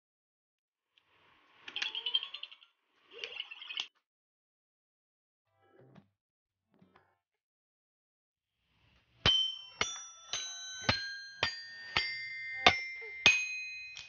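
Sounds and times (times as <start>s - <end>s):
toy xylophone notes: 9.3s - 14.0s.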